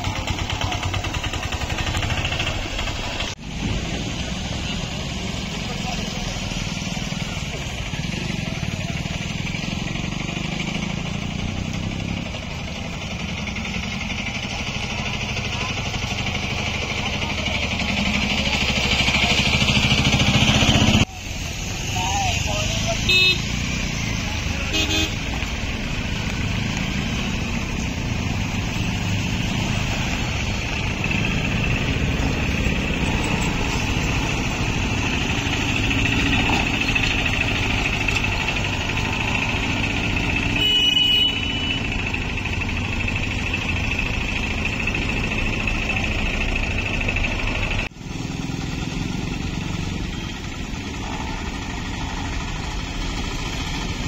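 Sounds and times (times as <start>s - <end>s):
rickshaw and motorbike engines: 0.0s - 54.0s
horn beep: 40.4s - 42.0s.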